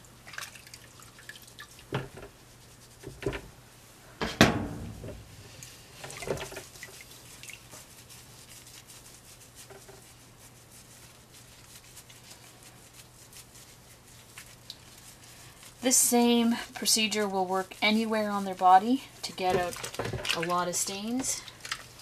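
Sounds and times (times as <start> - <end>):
water splashing in a plastic tub: 0.2 - 1.9, 6.0 - 7.7
hands rubbing wet cloth: 0.2 - 3.3, 5.2 - 22.0
sharp knocks: 4.2 - 5.3.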